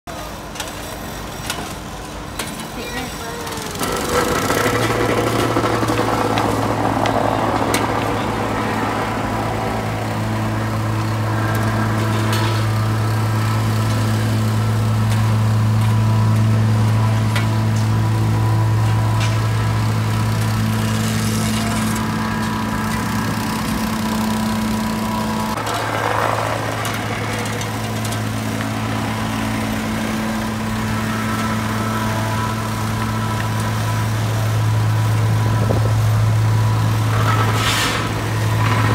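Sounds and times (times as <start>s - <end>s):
diesel engine humming: 0.1s - 38.9s
rakes scraping asphalt: 18.6s - 38.9s.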